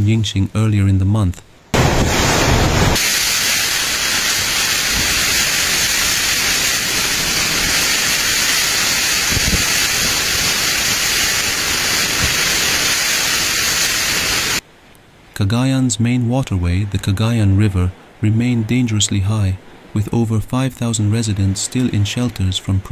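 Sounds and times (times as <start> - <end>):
torrential rain pouring: 1.7 - 14.6
wind gusts rumbling: 1.7 - 14.6.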